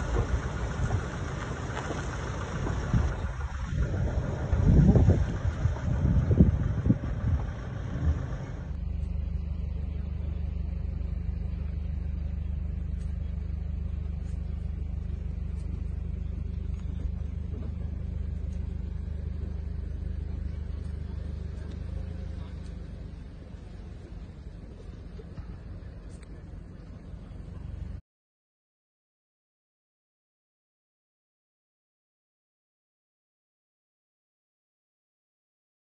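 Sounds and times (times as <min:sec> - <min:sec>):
vehicle engine humming: 0:00.0 - 0:28.0.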